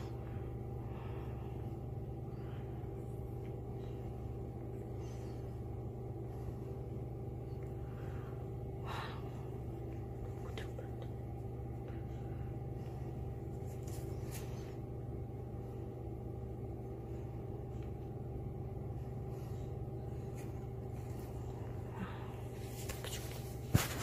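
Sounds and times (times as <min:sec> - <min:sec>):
low mechanical hum: 0:00.0 - 0:24.0
hand rustling on paper: 0:22.5 - 0:24.0.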